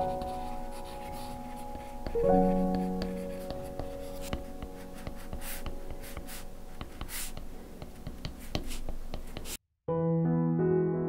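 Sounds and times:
soft piano chord: 0.0s - 6.7s, 9.9s - 11.0s.

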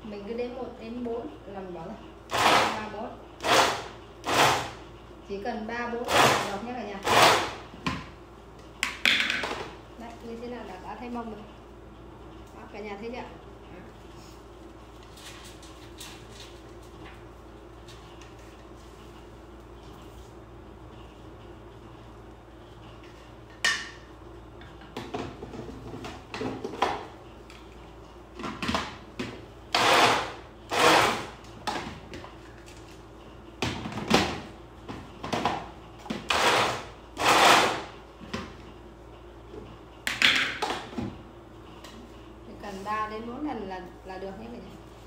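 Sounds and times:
blender whirring in bursts: 2.3s - 2.8s, 3.4s - 4.8s, 6.1s - 7.6s, 29.7s - 31.4s, 36.3s - 37.9s.

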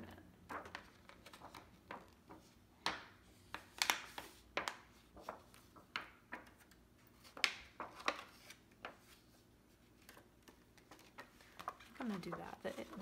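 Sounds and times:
plastic sheet crackling: 10.1s - 13.0s.

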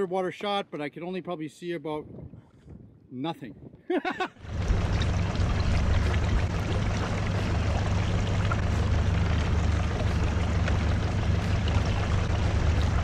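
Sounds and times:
wind: 0.0s - 13.0s
boat motor humming: 4.4s - 13.0s
water rushing: 4.4s - 13.0s.

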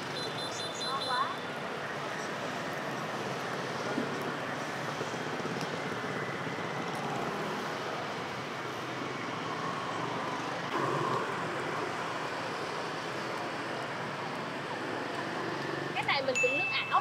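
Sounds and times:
busy street traffic: 0.0s - 17.0s.

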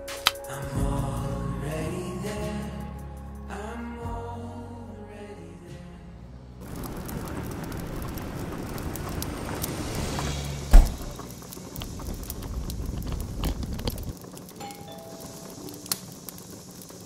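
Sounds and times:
wood fire crackling: 0.0s - 3.2s, 6.6s - 17.0s
heavy low thump: 10.7s - 11.2s.

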